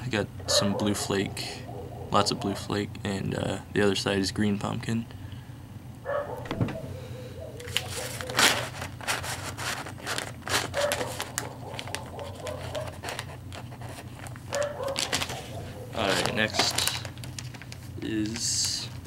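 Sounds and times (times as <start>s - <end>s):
plastic bag crinkling: 7.6s - 19.0s.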